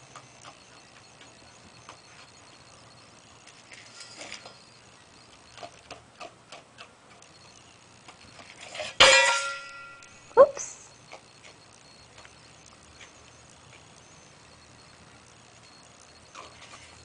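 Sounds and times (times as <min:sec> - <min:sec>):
loud ringing metal clank: 0:08.7 - 0:10.2.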